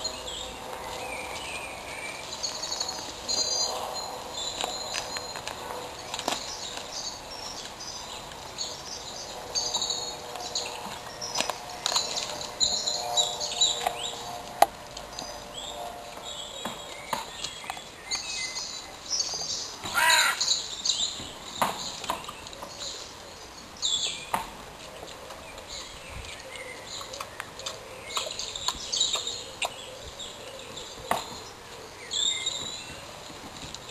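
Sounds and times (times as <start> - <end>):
birds chirping: 0.0 - 33.9
animal crunching on bones: 0.1 - 18.3, 24.6 - 31.5
harsh caws: 19.9 - 20.4.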